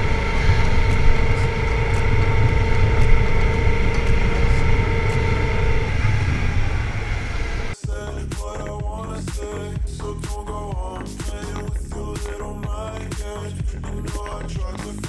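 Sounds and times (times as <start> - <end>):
motorcycle engine cruising: 0.0 - 7.8
wind rumble on microphone: 0.0 - 7.8.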